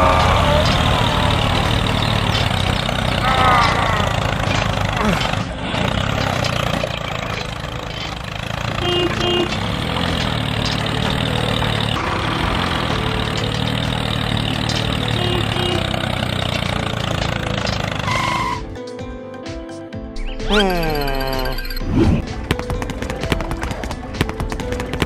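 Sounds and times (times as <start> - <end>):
toy tractor engine running: 0.0 - 18.7.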